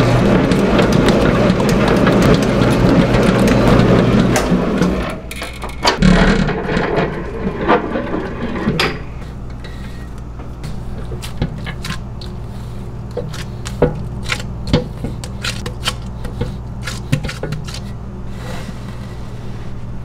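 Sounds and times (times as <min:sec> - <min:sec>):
dough mixer motor hum: 0:00.0 - 0:05.3.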